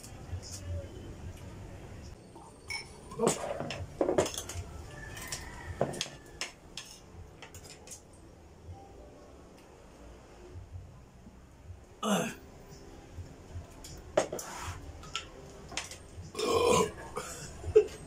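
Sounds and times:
spoon clinking on plates and glass: 2.6s - 4.6s.

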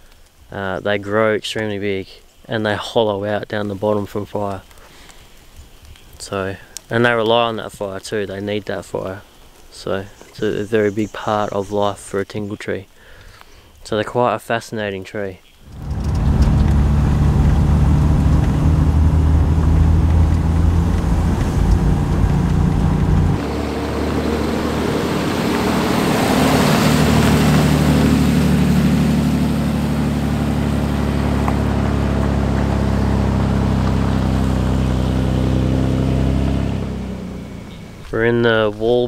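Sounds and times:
road noise: 15.6s - 39.0s
vehicle engine droning: 15.7s - 38.8s.

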